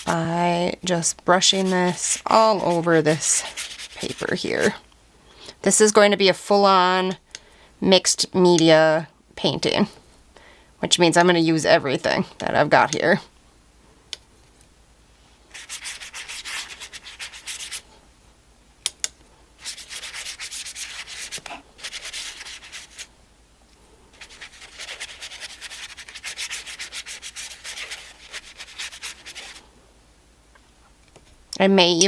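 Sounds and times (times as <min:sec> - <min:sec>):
paintbrush scrubbing on paper: 0:00.0 - 0:00.3, 0:01.3 - 0:04.8, 0:15.5 - 0:17.9, 0:19.6 - 0:23.1, 0:24.1 - 0:29.6.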